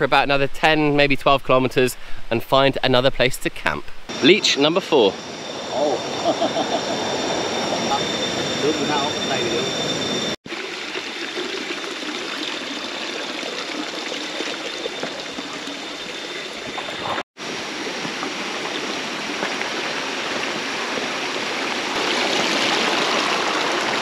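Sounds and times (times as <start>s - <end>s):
stream water flowing: 10.5s - 24.0s.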